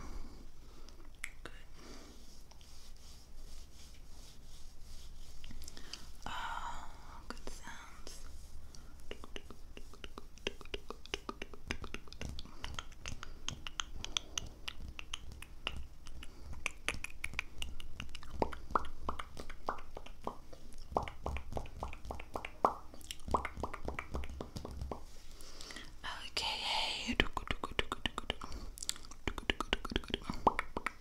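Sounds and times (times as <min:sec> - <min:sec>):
wet mouth clicks: 0:00.9 - 0:01.6, 0:09.1 - 0:25.8, 0:27.1 - 0:31.0
deep mouth pops: 0:09.1 - 0:25.1, 0:27.2 - 0:31.0.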